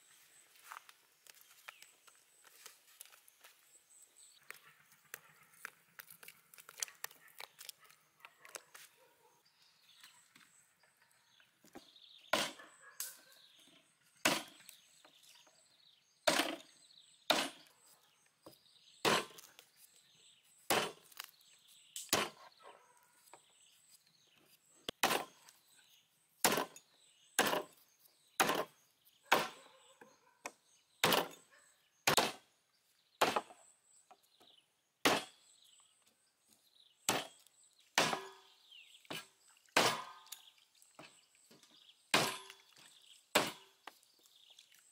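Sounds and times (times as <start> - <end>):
cleaver chopping bones on wood: 14.2 - 14.7, 19.0 - 19.4, 20.7 - 21.3, 22.1 - 22.5, 25.0 - 25.4, 26.4 - 26.8, 27.4 - 27.7, 28.4 - 28.7, 29.3 - 29.6, 31.0 - 31.4, 32.1 - 32.4, 33.2 - 33.6, 35.0 - 35.4, 37.1 - 37.4, 38.0 - 38.5, 39.1 - 40.3, 42.1 - 42.6, 43.3 - 43.7.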